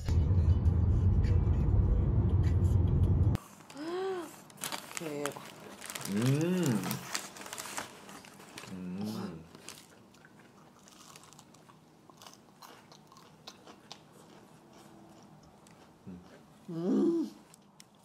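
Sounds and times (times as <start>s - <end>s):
chewing and crunching food: 4.4s - 18.0s.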